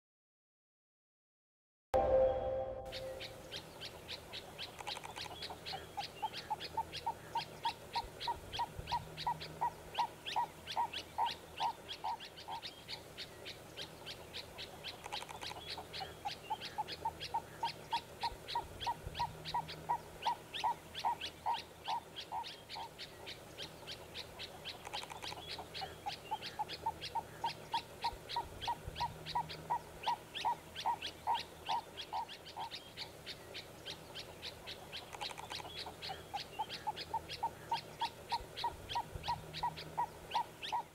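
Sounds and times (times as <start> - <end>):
high bird chirps: 2.0 - 6.8
bird calling evenly spaced notes: 2.0 - 40.9.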